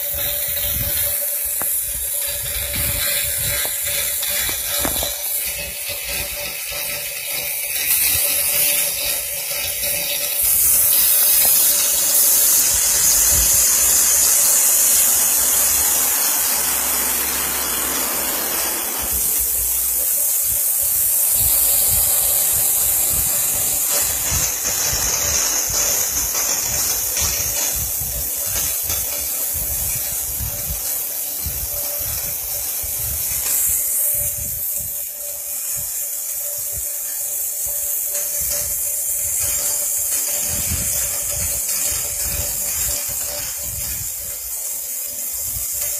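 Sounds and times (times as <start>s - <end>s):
router bit cutting plastic: 0.0s - 34.6s.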